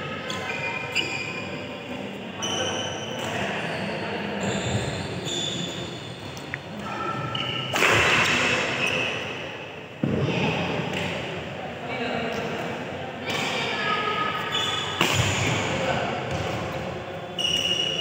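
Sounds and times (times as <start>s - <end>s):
shoes squeaking on court: 2.4s - 6.5s, 7.2s - 7.7s
rackets striking shuttlecock: 7.4s - 8.8s, 15.0s - 15.6s.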